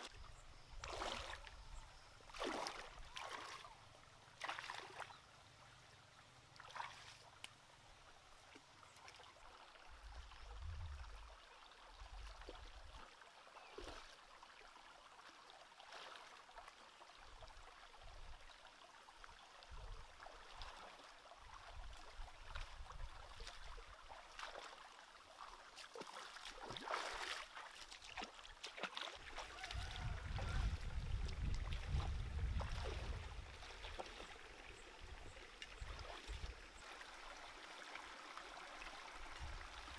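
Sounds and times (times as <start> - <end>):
water trickling and sloshing: 0.0 - 39.9
small splashes and knocks: 0.8 - 1.6, 2.3 - 3.8, 4.4 - 5.2, 6.6 - 7.6, 21.6 - 37.1.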